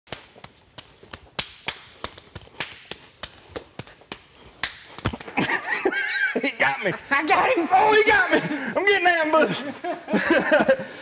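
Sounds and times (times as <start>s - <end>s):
hands slapping: 0.1s - 5.6s.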